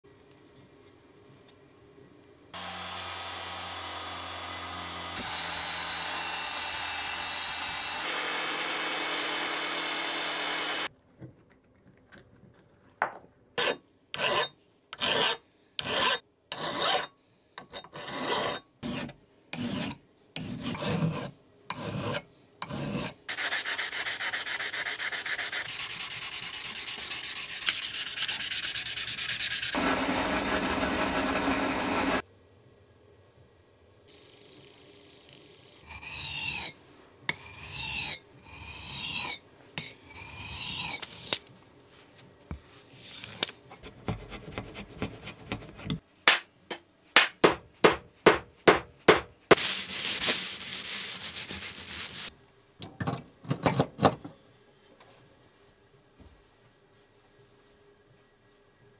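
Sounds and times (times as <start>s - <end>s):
angle grinder grinding steel: 2.6s - 10.9s, 26.5s - 32.2s, 35.8s - 39.4s
hand file rasping on steel: 13.6s - 17.1s, 17.8s - 32.2s, 35.9s - 39.4s.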